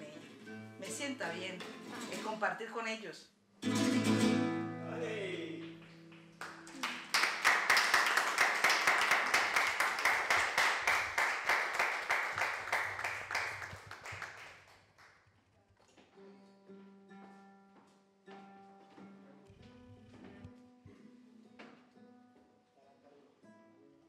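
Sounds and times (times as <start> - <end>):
audience applauding: 5.6 - 15.2
soft instrumental music: 16.1 - 24.0.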